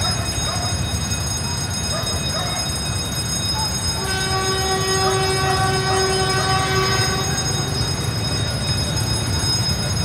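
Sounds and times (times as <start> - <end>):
diesel locomotive horn: 4.0 - 7.7.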